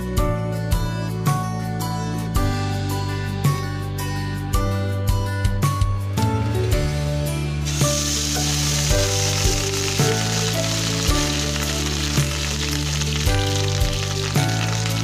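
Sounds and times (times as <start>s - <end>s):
background music with steady beat: 0.0s - 15.0s
mixture sizzling in hot oil: 7.6s - 15.0s.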